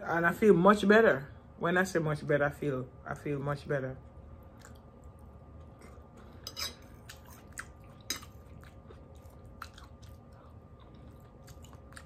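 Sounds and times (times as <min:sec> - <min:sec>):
person chewing food: 0:04.4 - 0:12.0.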